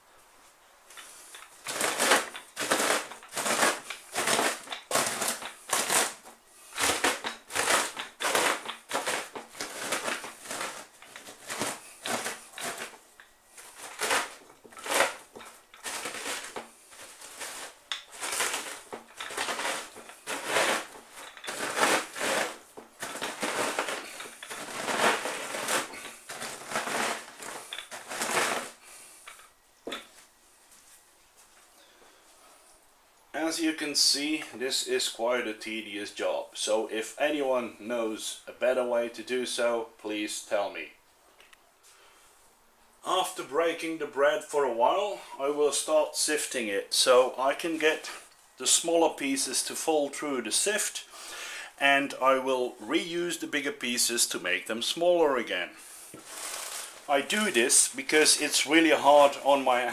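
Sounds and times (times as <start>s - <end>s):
rolling pin crushing dry bread: 0.9s - 30.1s, 56.2s - 59.9s.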